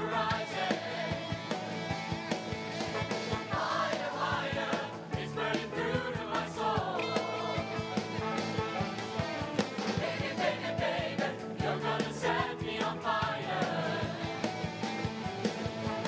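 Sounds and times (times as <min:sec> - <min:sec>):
choir singing: 0:00.0 - 0:01.4, 0:03.4 - 0:08.3, 0:09.9 - 0:14.6
steady drum beat: 0:00.0 - 0:16.0
band playing: 0:00.8 - 0:05.1, 0:06.8 - 0:10.8.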